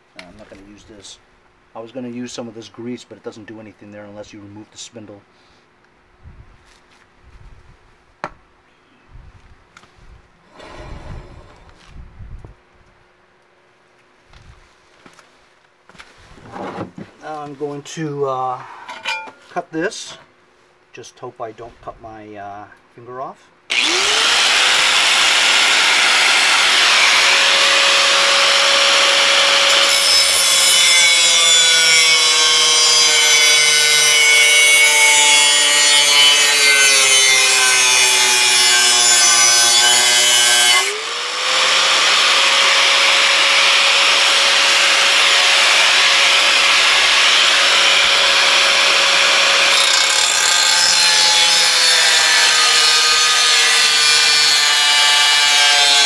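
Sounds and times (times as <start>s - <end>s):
angle grinder cutting sheet metal: 23.7s - 56.0s.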